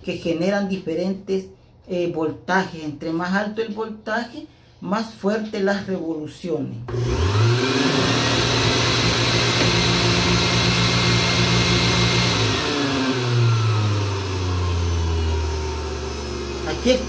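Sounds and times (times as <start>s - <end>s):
blender motor whine: 6.9s - 17.0s.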